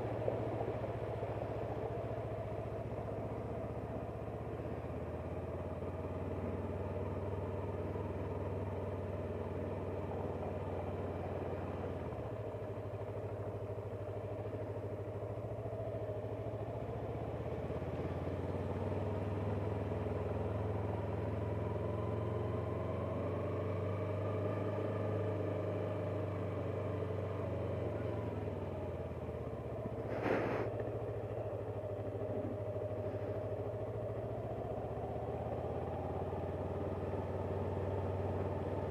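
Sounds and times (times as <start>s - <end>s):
motorcycle engine running steadily: 0.0s - 38.9s
brief sharp noise: 30.1s - 30.7s.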